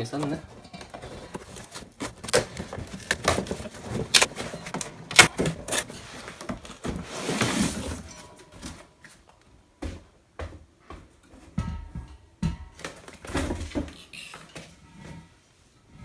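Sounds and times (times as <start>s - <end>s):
cardboard box tearing: 1.4s - 5.9s.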